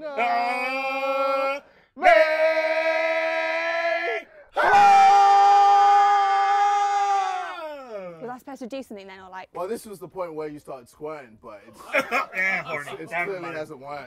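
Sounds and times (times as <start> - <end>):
man screaming: 0.0 - 8.2.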